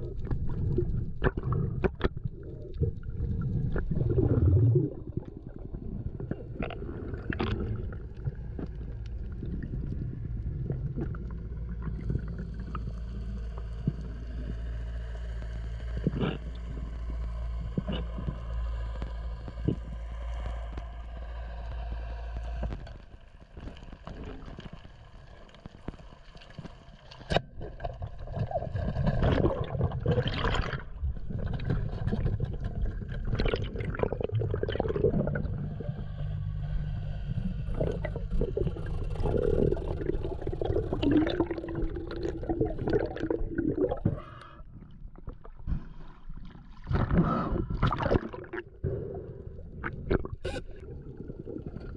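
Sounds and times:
water gurgling underwater: 0.0 - 14.5, 25.6 - 36.6, 37.3 - 51.9
steady hum: 30.3 - 46.2.

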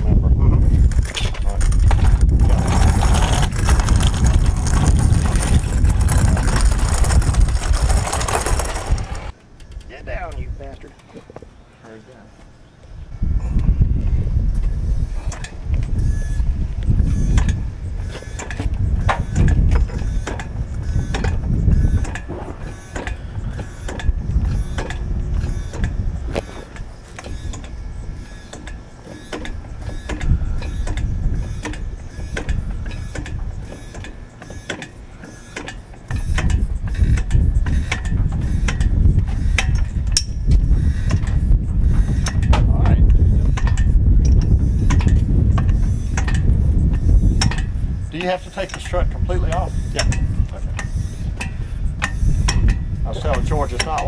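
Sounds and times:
metallic clicks and clanks of jack: 42.2 - 52.8.

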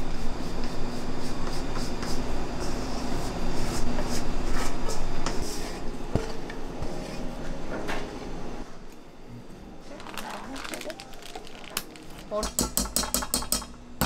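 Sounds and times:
low machine hum: 0.0 - 14.0.

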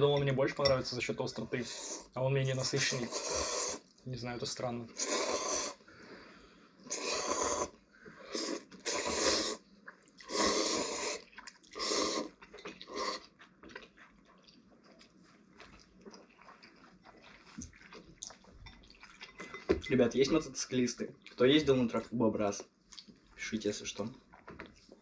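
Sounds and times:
people slurping noodles: 1.6 - 2.1, 2.8 - 3.9, 4.9 - 5.8, 6.9 - 9.6, 10.2 - 13.3
quiet eating noises: 4.9 - 25.0.

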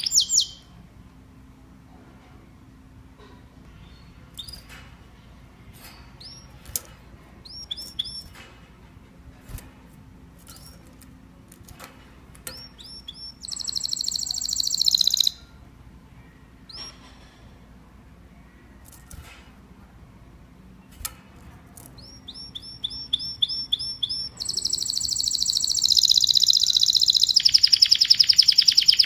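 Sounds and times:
canary singing: 0.0 - 0.8, 6.1 - 6.8, 7.4 - 8.4, 12.4 - 15.6, 21.8 - 29.0.

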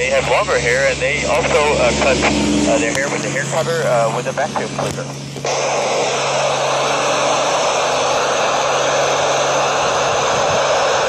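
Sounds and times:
person speaking over radio: 0.0 - 5.2
radio static hiss: 0.0 - 11.0.

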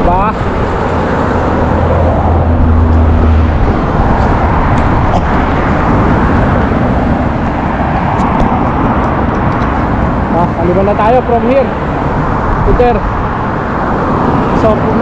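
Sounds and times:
vehicle low hum: 0.0 - 10.9
car traffic passing: 0.0 - 15.0
wind rushing over microphone: 0.0 - 15.0.

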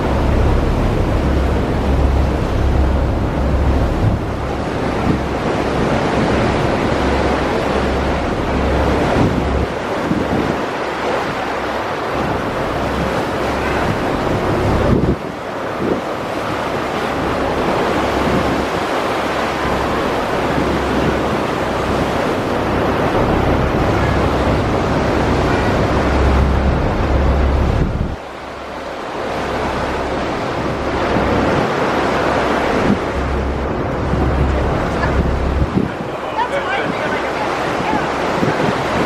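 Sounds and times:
water rushing: 0.0 - 39.0
wind buffeting microphone: 0.0 - 39.0.

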